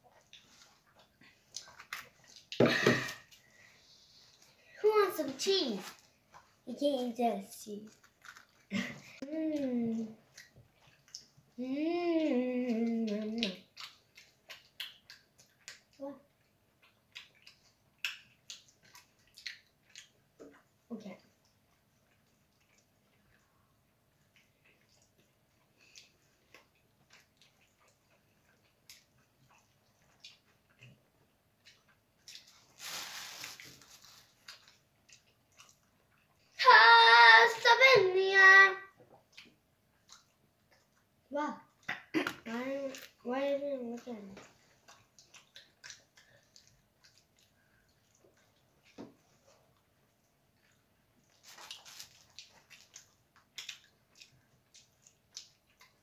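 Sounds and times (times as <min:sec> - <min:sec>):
chewing and mouth sounds: 0:00.0 - 0:04.6, 0:05.8 - 0:06.6, 0:07.6 - 0:36.6, 0:38.9 - 0:56.0
girl singing high notes: 0:36.6 - 0:38.9.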